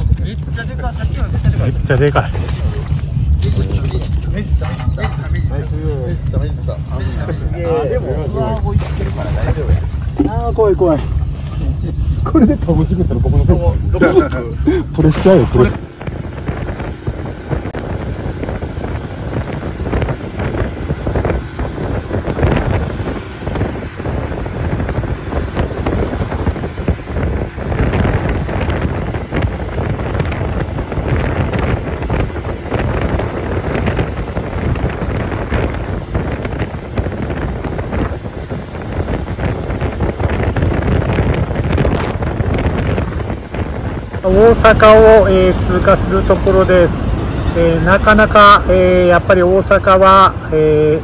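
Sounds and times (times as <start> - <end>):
road noise: 0.0 - 51.0
wind buffeting microphone: 0.0 - 51.0
scooter engine running: 13.9 - 48.1.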